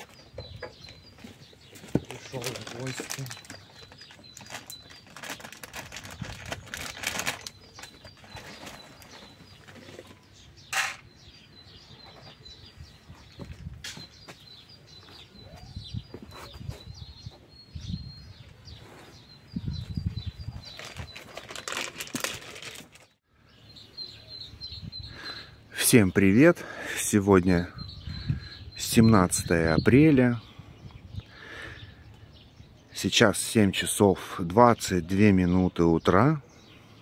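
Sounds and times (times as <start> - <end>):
rustling and handling noise: 0.0 - 11.1, 19.8 - 23.2
small birds chirping: 0.0 - 37.0.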